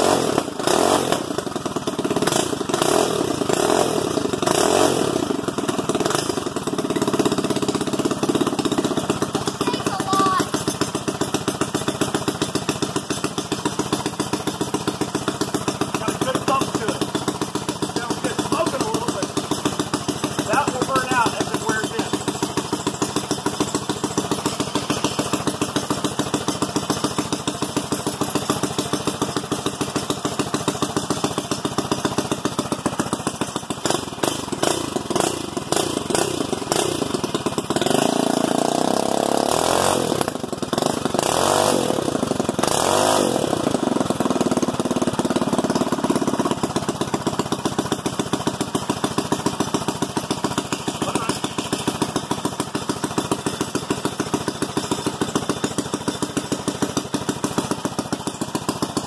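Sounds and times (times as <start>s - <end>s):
small engine running and revving: 0.0s - 59.0s.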